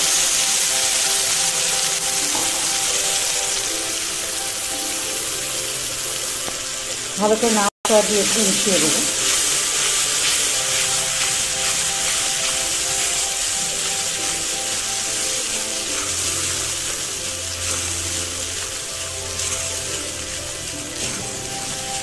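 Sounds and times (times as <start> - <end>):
paste sizzling in hot oil: 0.0 - 22.0
metal spatula scraping a pan: 9.1 - 14.4, 15.2 - 22.0.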